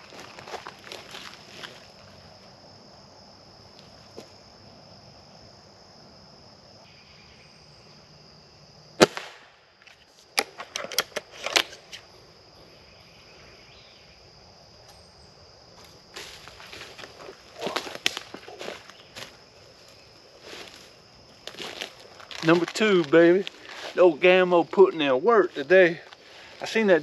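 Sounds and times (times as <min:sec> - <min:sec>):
high insect drone: 0:00.0 - 0:27.0
air rifle shot: 0:09.0 - 0:09.6
sharp clicks and rustles: 0:09.8 - 0:12.0.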